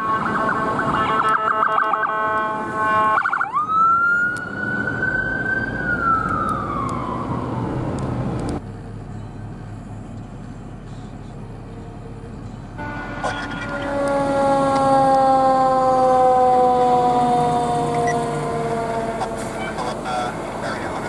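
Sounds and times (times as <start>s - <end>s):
ambulance siren: 0.0s - 8.0s, 12.8s - 21.0s
street noise: 0.0s - 21.0s.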